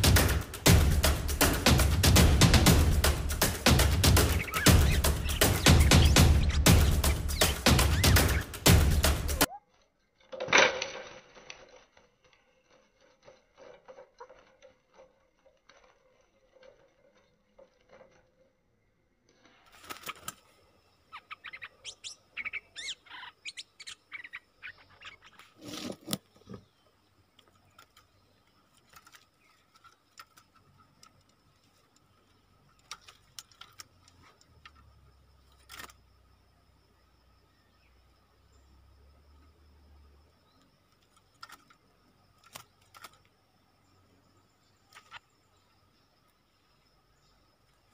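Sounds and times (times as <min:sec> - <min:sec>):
scattered clicks and knocks: 0:00.0 - 0:09.5
bulbul chirping and calling: 0:03.2 - 0:09.7, 0:19.8 - 0:30.1.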